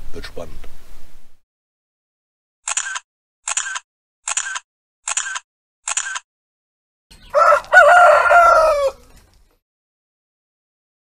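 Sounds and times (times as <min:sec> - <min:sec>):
short clicks: 0:02.6 - 0:06.3
rooster crowing: 0:07.2 - 0:09.2.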